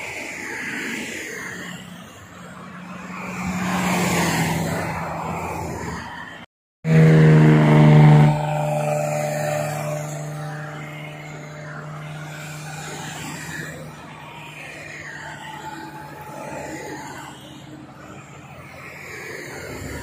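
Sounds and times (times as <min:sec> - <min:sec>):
cars passing on motorway: 0:00.0 - 0:20.0
loud steady pitched tone: 0:06.8 - 0:20.0.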